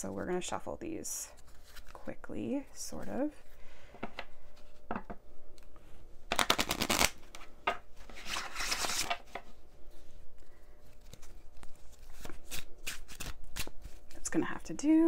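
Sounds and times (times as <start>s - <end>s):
cards being shuffled: 6.3s - 14.3s.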